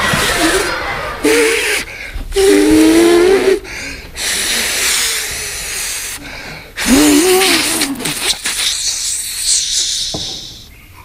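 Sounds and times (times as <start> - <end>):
man humming: 0.2 - 6.2, 6.8 - 10.6
man's breathy hiss: 3.7 - 10.8.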